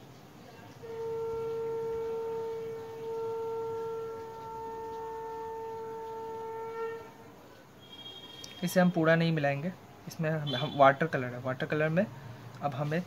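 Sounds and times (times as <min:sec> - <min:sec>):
sustained wind instrument note: 0:00.8 - 0:08.6.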